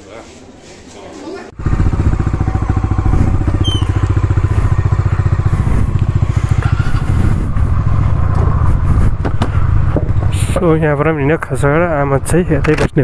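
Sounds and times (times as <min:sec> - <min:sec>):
scooter engine running: 0:01.5 - 0:10.6.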